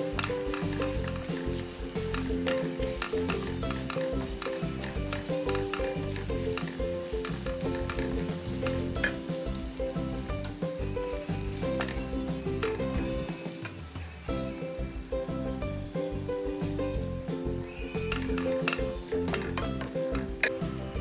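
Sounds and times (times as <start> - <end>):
wooden spatula scraping a wok: 0.0 - 14.7, 17.1 - 21.0
spice paste sizzling in a wok: 0.0 - 21.0.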